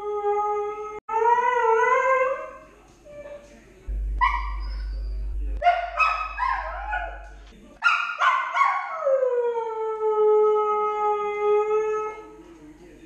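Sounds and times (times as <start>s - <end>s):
dog howling: 0.0s - 3.4s
dog yips: 7.8s - 9.1s.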